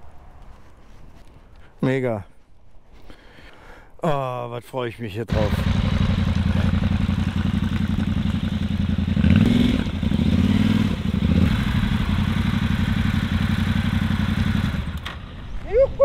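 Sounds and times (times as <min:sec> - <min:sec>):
motorcycle engine running: 0:05.3 - 0:15.4.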